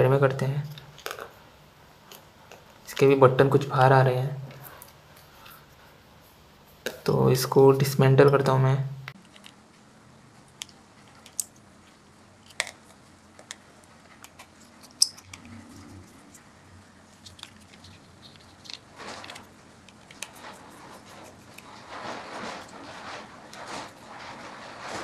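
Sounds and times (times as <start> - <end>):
plastic parts clicking: 17.1 - 20.4.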